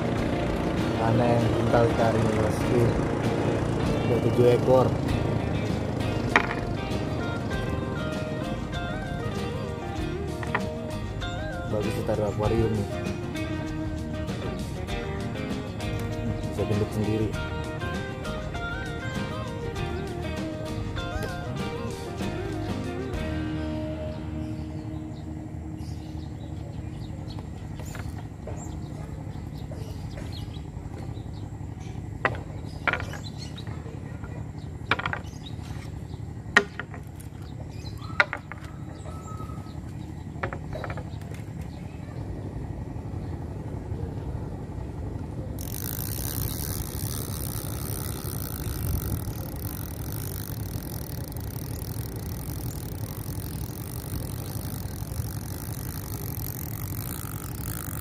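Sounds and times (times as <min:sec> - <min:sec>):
boat engine drone: 0:00.0 - 0:58.0
sharp clicks: 0:45.6 - 0:58.0.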